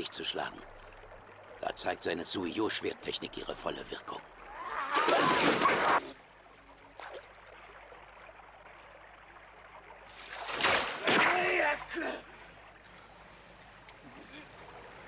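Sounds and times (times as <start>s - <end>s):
water splashing hard: 4.5s - 6.2s, 10.1s - 12.2s.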